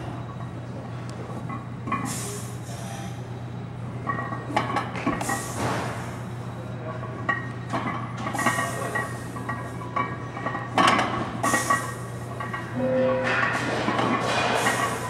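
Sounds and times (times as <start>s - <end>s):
steady low hum: 0.0s - 15.0s
weight plates clinking: 8.6s - 15.0s.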